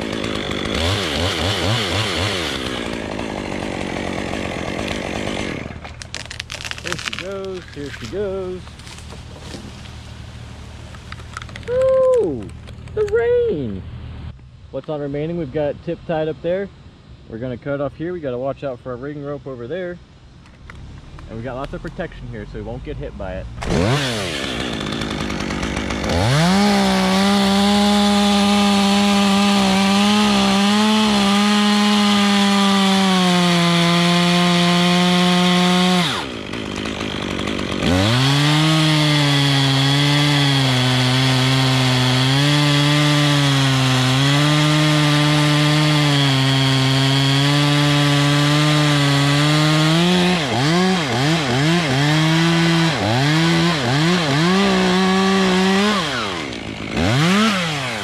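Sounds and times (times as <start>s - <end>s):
chainsaw cutting a limb: 0.0s - 11.7s, 23.6s - 58.0s.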